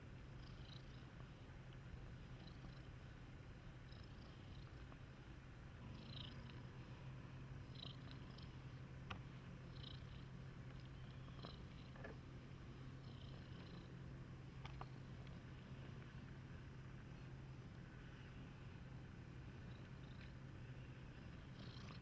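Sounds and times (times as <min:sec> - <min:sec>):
cat purring: 0:00.0 - 0:22.0
faint high chirps: 0:09.7 - 0:12.1, 0:17.0 - 0:22.0.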